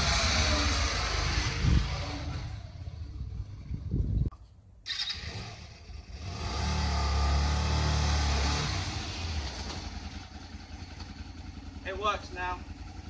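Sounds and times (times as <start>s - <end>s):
motorcycle engine running: 5.8s - 13.0s.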